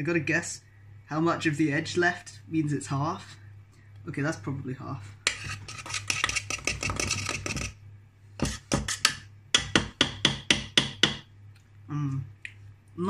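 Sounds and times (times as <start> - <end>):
wire whisk rattling in metal pot: 5.3 - 7.7.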